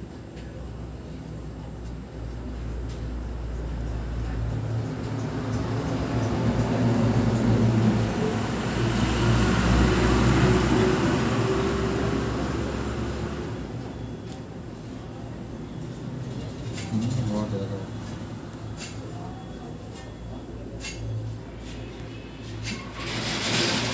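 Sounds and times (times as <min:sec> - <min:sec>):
vehicle passing by: 0:04.5 - 0:13.8.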